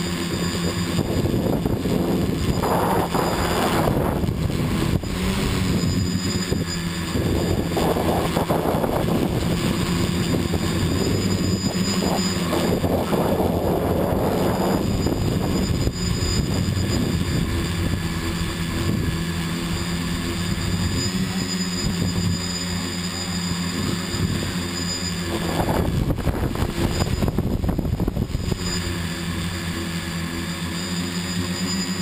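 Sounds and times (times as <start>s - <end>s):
small aircraft motors humming: 0.0s - 32.0s.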